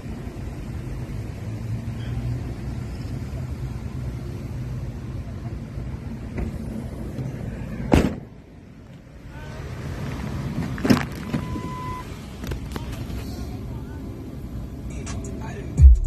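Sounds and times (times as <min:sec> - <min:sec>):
vehicle door thudding shut: 0:07.9 - 0:08.3
short steady beep: 0:11.4 - 0:12.1.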